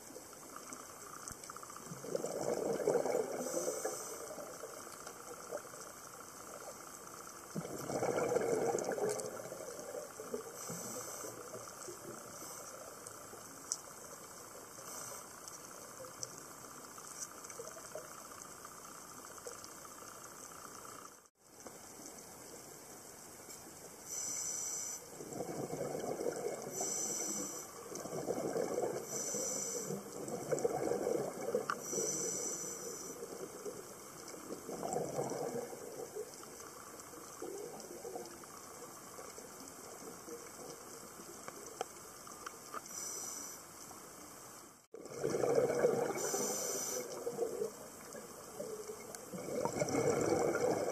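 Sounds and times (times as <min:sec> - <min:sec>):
exhaled bubbles gushing: 0:01.8 - 0:05.7, 0:07.5 - 0:10.6, 0:25.1 - 0:26.9, 0:27.8 - 0:29.2, 0:29.9 - 0:32.2, 0:33.2 - 0:36.6, 0:45.0 - 0:50.9
regulator hissing on inhale: 0:03.2 - 0:05.5, 0:08.8 - 0:13.4, 0:14.7 - 0:15.6, 0:24.0 - 0:25.2, 0:26.6 - 0:28.1, 0:28.9 - 0:30.3, 0:31.5 - 0:33.8, 0:42.7 - 0:43.9, 0:46.1 - 0:47.4.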